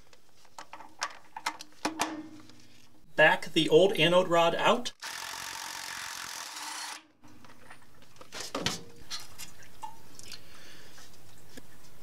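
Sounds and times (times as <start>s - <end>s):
impact driver spinning: 5.0s - 7.2s.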